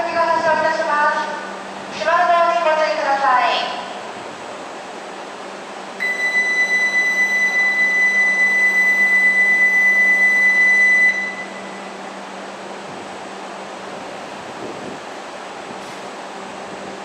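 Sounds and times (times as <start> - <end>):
electronic warning buzzer tone: 6.0 - 11.9.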